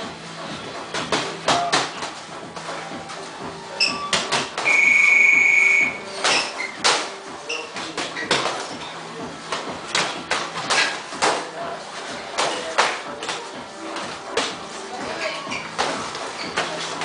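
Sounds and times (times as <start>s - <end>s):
boxing gloves hitting mitts: 0.9s - 2.2s, 4.1s - 4.8s, 6.2s - 7.1s, 7.7s - 8.7s, 9.4s - 11.5s, 12.3s - 14.6s, 15.7s - 17.0s
high electronic beep: 4.7s - 6.0s.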